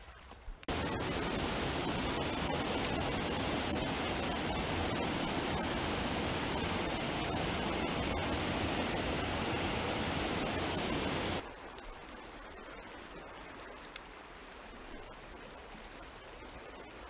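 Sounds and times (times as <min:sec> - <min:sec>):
stream water rushing: 0:00.7 - 0:12.5.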